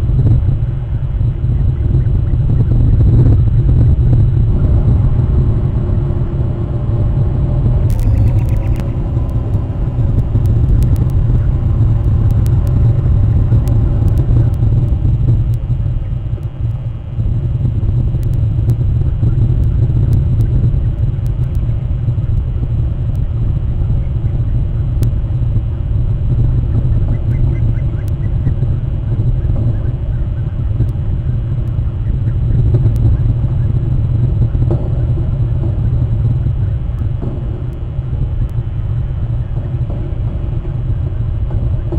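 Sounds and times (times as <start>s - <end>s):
faint humming tone: 0.0s - 41.9s
loud low rumble: 0.0s - 41.9s
faint clicks: 7.9s - 23.3s.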